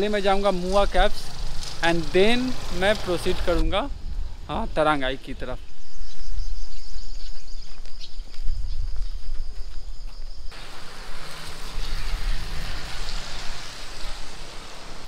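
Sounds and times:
wind rumbling on microphone: 0.7 - 10.5
rain falling: 10.6 - 15.0.

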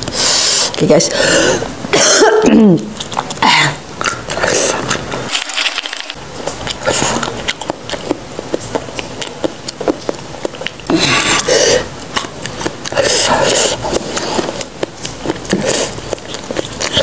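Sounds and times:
chewing crunches and wet clicks: 2.8 - 3.4, 4.0 - 17.0.

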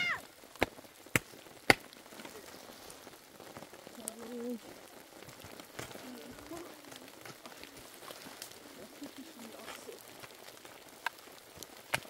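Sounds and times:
rain pattering: 0.0 - 12.0.

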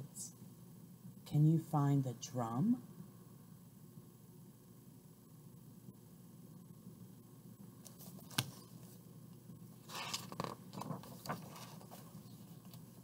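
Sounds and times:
book page turning: 7.8 - 9.0, 9.8 - 13.0.

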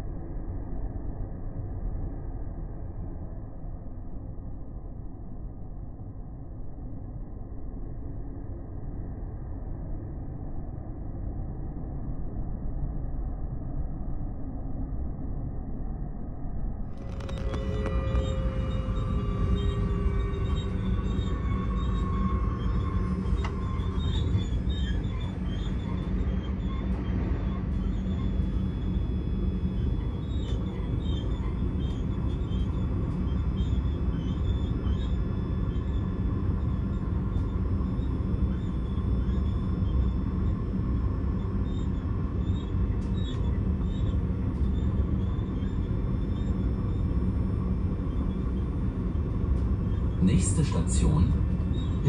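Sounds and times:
train wheels rumbling on track: 17.0 - 33.8
high wavering squeaks: 17.0 - 37.4.

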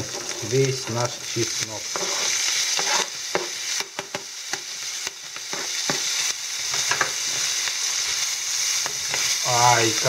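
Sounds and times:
shrimp sizzling in a frying pan: 0.0 - 10.0
knife scraping cutting board: 1.9 - 3.2.

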